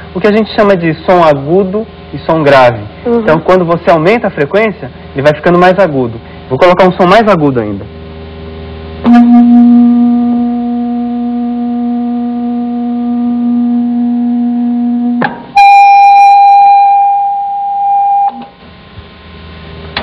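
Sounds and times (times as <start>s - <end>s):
loudspeaker steady tone: 9.0s - 18.6s.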